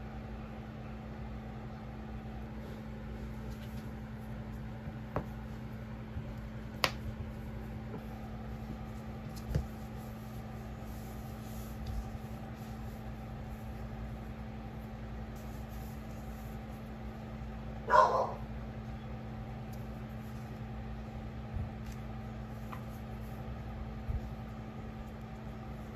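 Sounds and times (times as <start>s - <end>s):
steady low hum: 0.0s - 25.9s.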